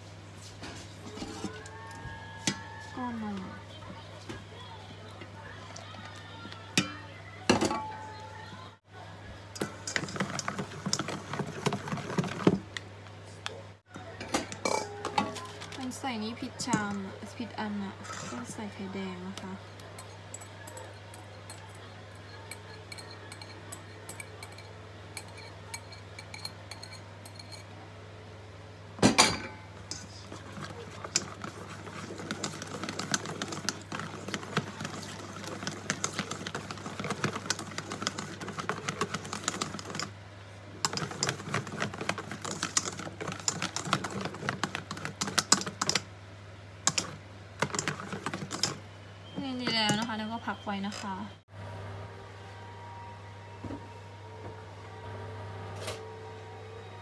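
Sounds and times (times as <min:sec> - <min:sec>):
whisk clicking against metal bowl: 0:29.9 - 0:40.1, 0:40.8 - 0:46.0, 0:46.9 - 0:48.8.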